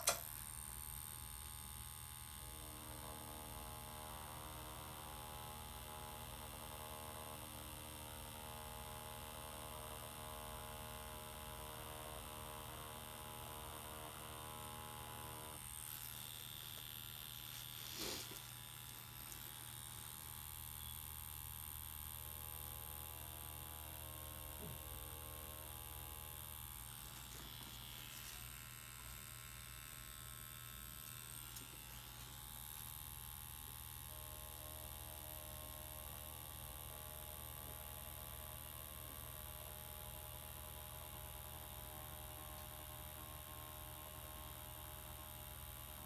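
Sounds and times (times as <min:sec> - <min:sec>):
tattoo machine buzzing: 0:00.0 - 0:46.0.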